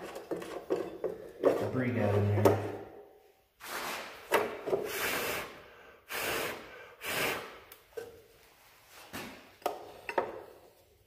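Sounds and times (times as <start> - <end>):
man blowing air by mouth: 4.8 - 7.7.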